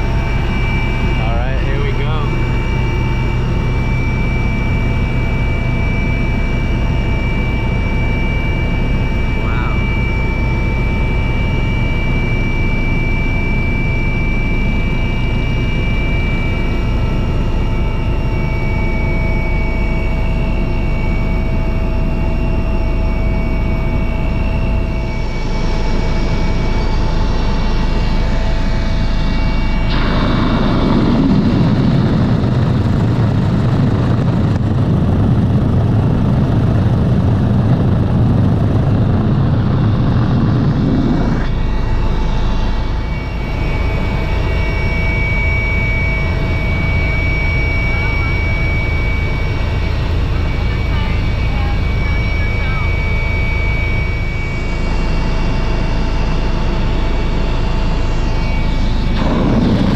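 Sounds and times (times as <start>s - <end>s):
heavy low rumble: 0.0s - 7.4s, 23.8s - 59.9s
helicopter engine and rotor drone: 0.0s - 59.9s
high whine: 0.0s - 59.9s.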